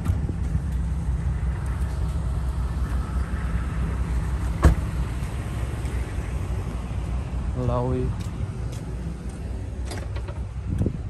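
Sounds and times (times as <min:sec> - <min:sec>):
steady low rumble: 0:00.0 - 0:11.0
truck door shutting: 0:04.5 - 0:05.0, 0:09.8 - 0:10.5.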